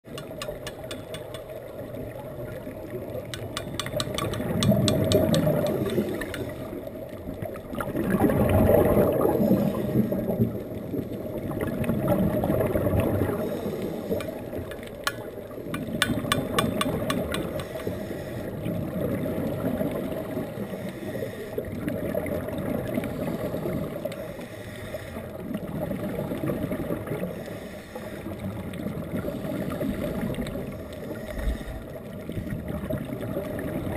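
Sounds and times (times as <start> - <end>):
rushing underwater noise: 0.0 - 33.9
scuba tank banging clicks: 0.1 - 1.6, 3.3 - 6.7, 14.2 - 18.0.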